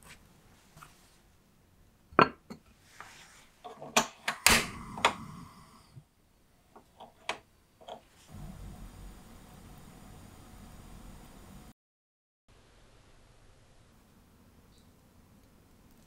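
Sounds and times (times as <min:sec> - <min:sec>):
low steady hum: 0:07.8 - 0:11.7.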